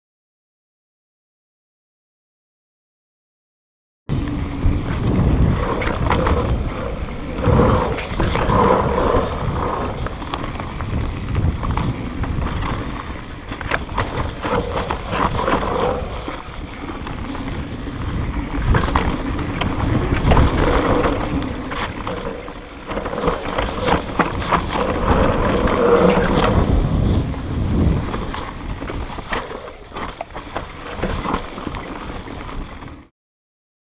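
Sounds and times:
disc brakes humming drone: 4.1s - 30.1s
tyres rumbling on dirt trail: 4.1s - 33.1s
wind: 4.1s - 33.1s.

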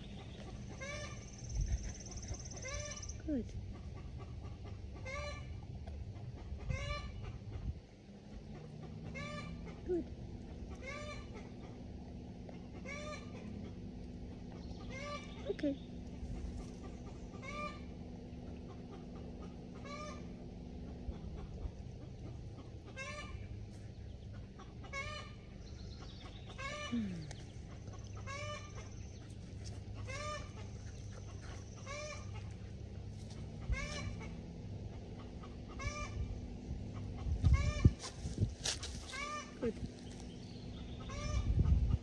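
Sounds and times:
chicken calling: 4.0s - 5.5s, 10.7s - 11.8s, 12.6s - 15.5s, 16.4s - 18.0s, 18.6s - 23.6s, 24.3s - 32.7s, 33.4s - 36.4s, 37.0s - 38.2s, 38.8s - 42.0s.

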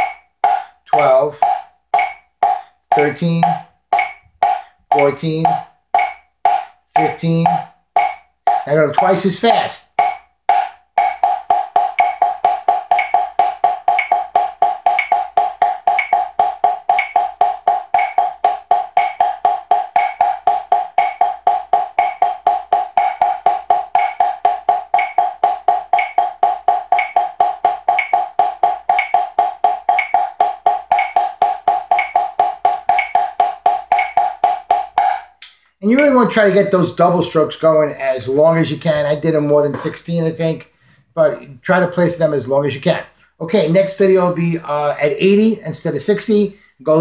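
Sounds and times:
drumsticks on practice pad: 0.0s - 35.8s
metronome clicking: 0.0s - 35.8s.

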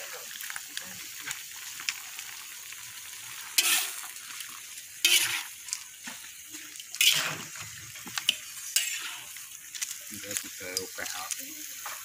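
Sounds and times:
meat sizzling in a wok: 0.0s - 12.0s
spatula scraping a wok: 3.3s - 6.3s, 6.9s - 10.0s.

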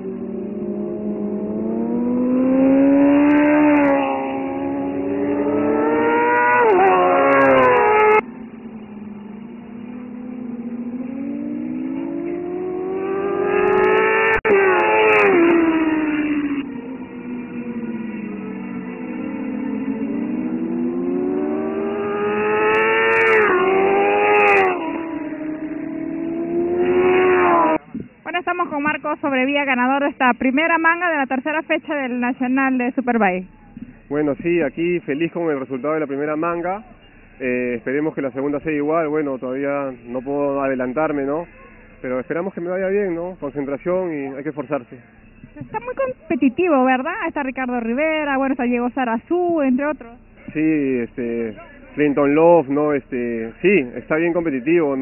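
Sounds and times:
motorcycle engines at high revs: 0.0s - 29.4s, 33.5s - 55.0s.

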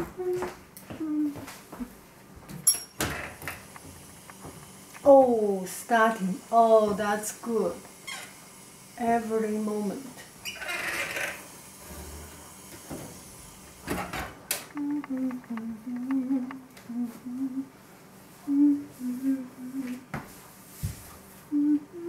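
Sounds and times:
woman humming: 0.0s - 2.0s, 14.6s - 20.1s, 21.5s - 22.0s.

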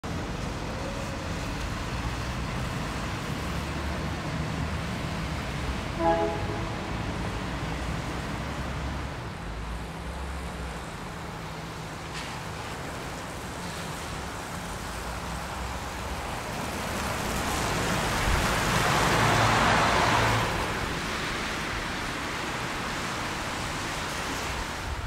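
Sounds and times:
city street traffic rumble: 0.0s - 25.0s
vehicle horn toot: 6.0s - 7.1s.

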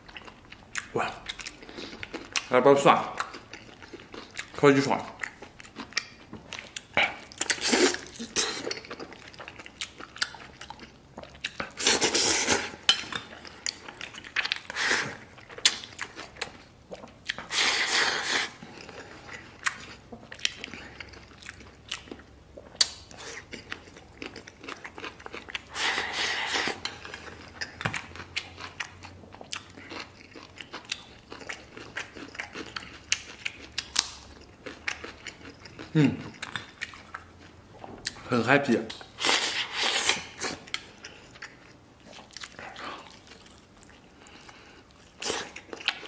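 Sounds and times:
chewing soft meat: 0.0s - 38.3s, 38.9s - 46.0s.

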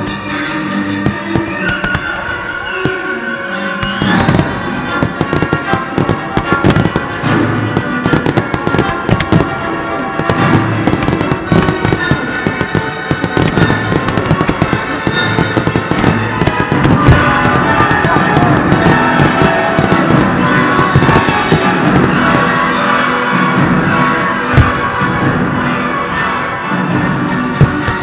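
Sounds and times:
loud music: 0.0s - 28.0s
firework shells bursting: 1.1s - 2.2s, 3.8s - 22.6s.

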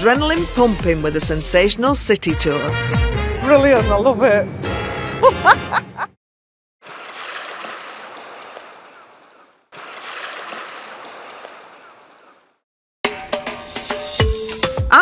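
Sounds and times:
ocean waves washing on beach: 6.8s - 12.4s.

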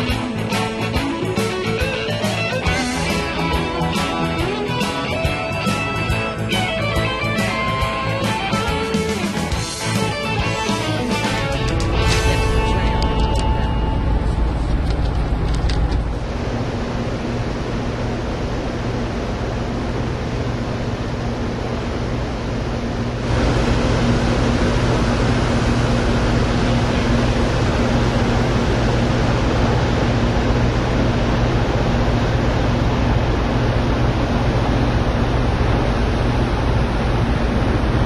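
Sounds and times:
ferry engines droning: 9.6s - 18.4s.

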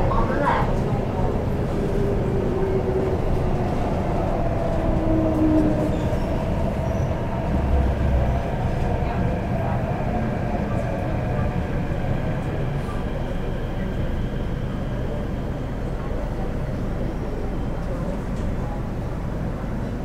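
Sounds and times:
wheels rumbling on rail: 0.0s - 20.0s.

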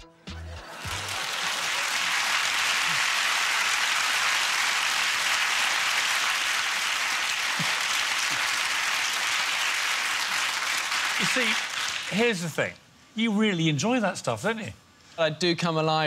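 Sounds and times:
audience applauding: 0.6s - 12.5s.

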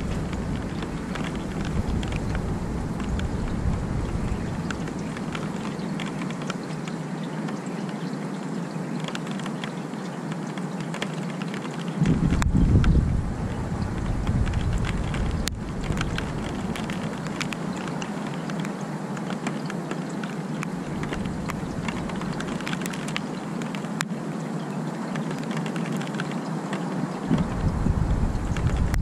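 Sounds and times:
low rumble: 0.0s - 5.4s, 12.0s - 17.2s, 27.3s - 29.0s
steady rain falling: 0.0s - 29.0s
drops ticking on surfaces: 4.0s - 8.1s, 14.0s - 24.1s.

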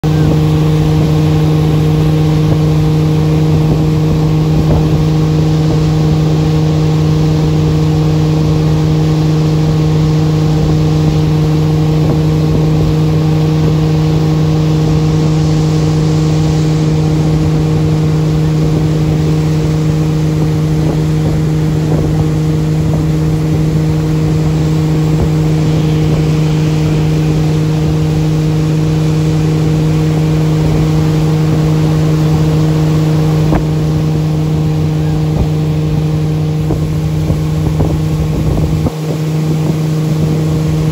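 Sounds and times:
boat engine droning: 0.0s - 40.9s.

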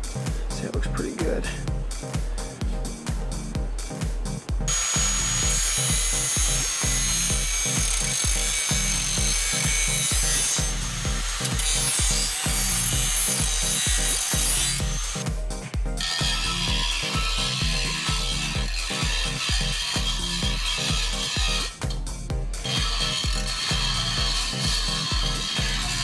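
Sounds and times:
electronic dance music: 0.0s - 26.0s
angle grinder on steel: 4.7s - 15.3s, 16.0s - 21.9s, 22.6s - 26.0s.

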